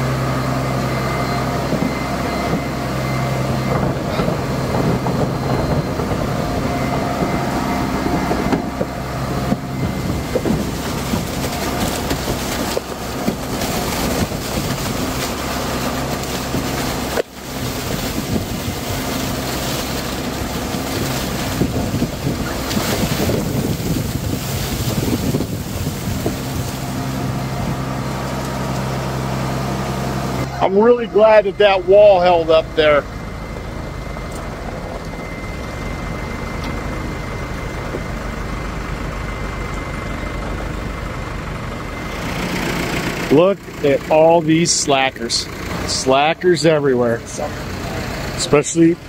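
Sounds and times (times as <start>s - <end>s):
diesel farm machinery running: 0.0s - 49.0s
wind on microphone: 3.6s - 15.2s, 17.7s - 27.9s.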